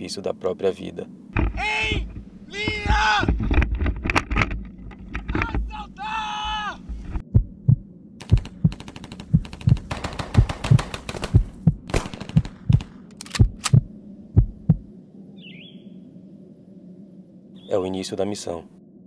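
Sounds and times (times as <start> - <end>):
faint hum: 0.0 - 19.0
crackling rustle: 1.0 - 6.0
deep rhythmic thumps: 1.4 - 14.9.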